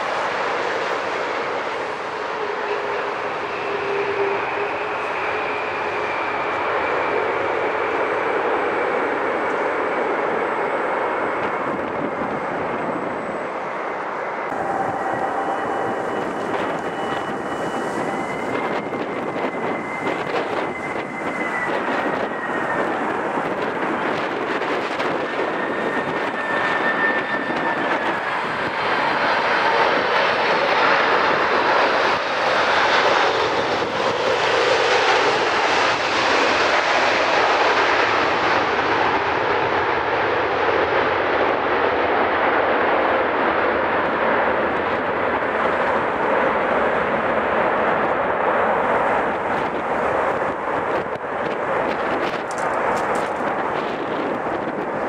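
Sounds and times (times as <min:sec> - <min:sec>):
jet engines rushing: 0:00.0 - 0:55.0
thin engine whine: 0:14.4 - 0:28.7.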